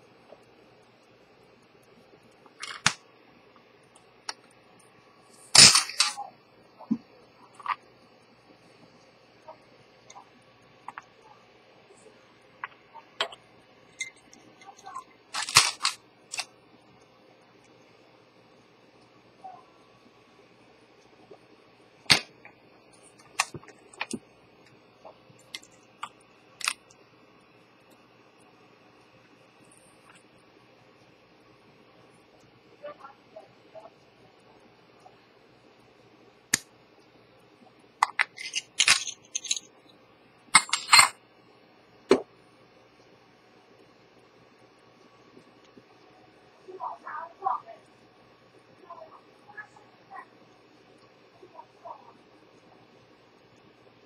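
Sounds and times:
handling clicks and scraping knocks: 38.0s - 39.6s.

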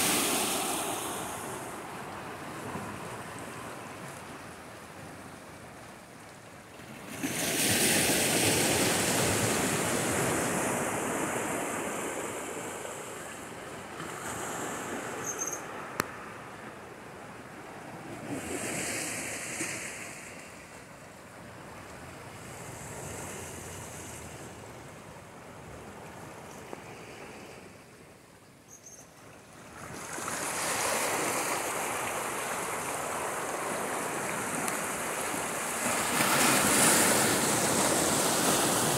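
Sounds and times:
waves breaking against rocks: 29.6s - 38.9s.

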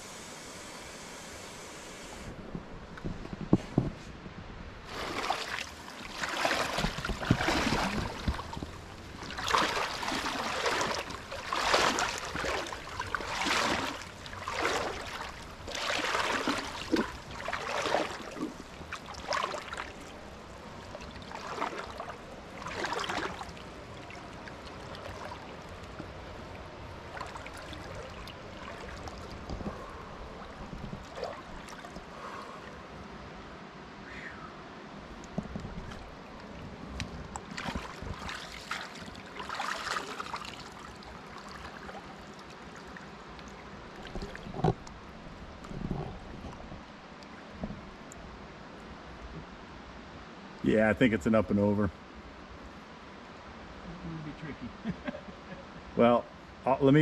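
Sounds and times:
stream rushing: 4.8s - 34.0s, 34.6s - 45.7s
water swishing from wading: 4.8s - 34.0s, 34.9s - 49.6s.

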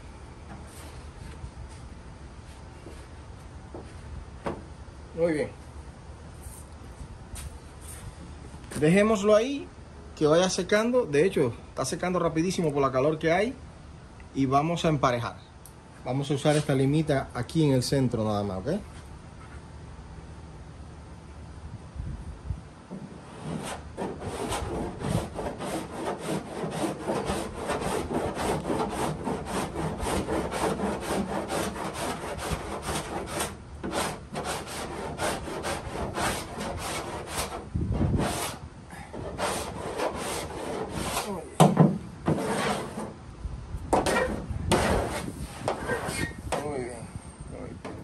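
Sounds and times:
body file scraping filler on metal: 23.2s - 41.4s, 42.3s - 43.2s, 44.0s - 46.4s.

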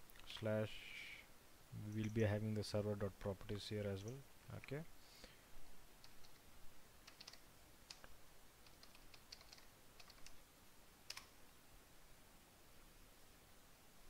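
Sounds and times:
keyboard typing: 6.0s - 6.4s, 7.0s - 10.4s, 11.1s - 11.4s.

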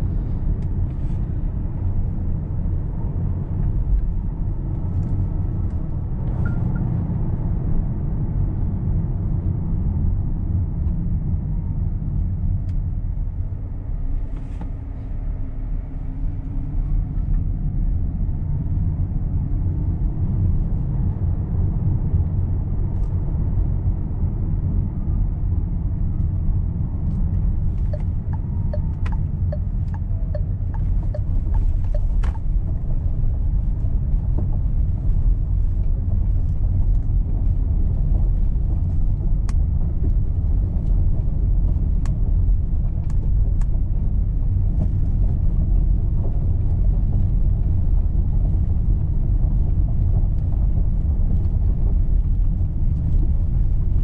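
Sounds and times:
road and tyre rumble: 0.0s - 54.0s.

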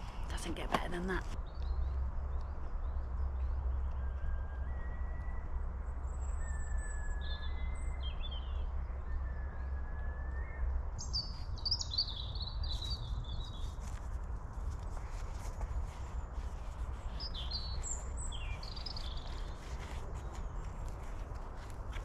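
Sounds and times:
birds singing: 6.1s - 14.1s, 15.0s - 22.0s
rustles: 11.0s - 22.0s.

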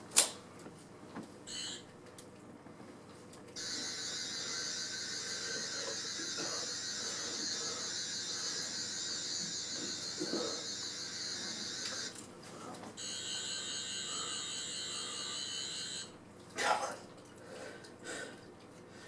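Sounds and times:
high wavering electronic whine: 3.6s - 12.2s, 13.0s - 16.1s.

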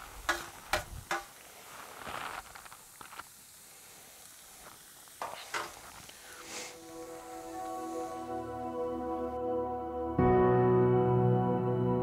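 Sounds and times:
meat sizzling on a grill: 0.0s - 8.5s.

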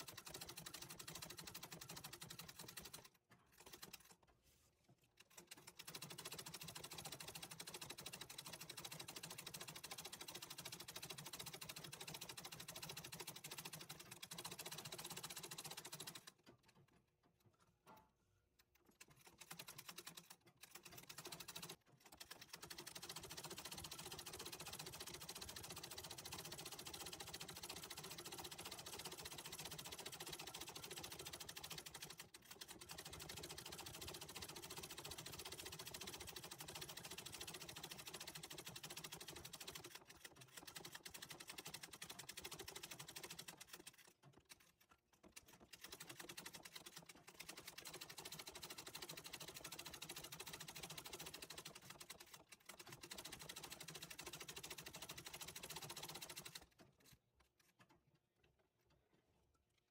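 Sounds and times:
treadle sewing machine stitching: 0.0s - 57.8s.

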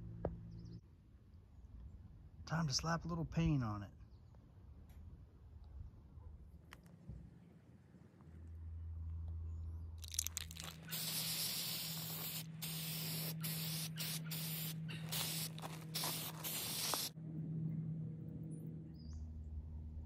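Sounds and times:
spray paint can hissing: 10.0s - 17.2s.

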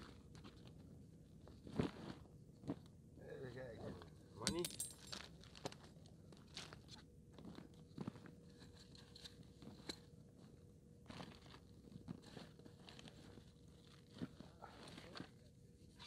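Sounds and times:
small handling clicks and crunches: 11.0s - 15.4s.

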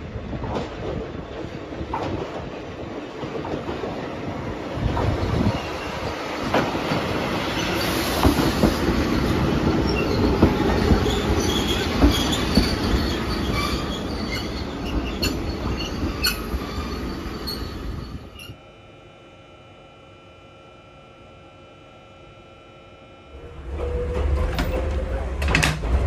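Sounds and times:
train running past: 0.0s - 18.7s, 23.2s - 26.0s
train wheels squealing: 7.5s - 18.6s.

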